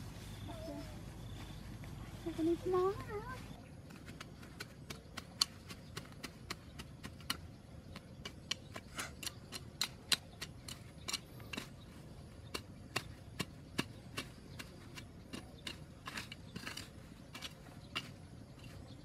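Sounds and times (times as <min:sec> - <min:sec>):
hand tool scraping ground: 0:08.2 - 0:19.0.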